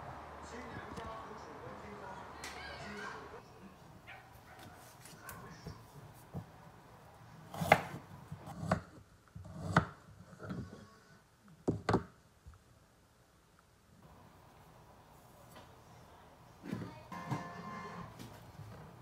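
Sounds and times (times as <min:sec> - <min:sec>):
knife chopping on wooden board: 0:07.5 - 0:08.9.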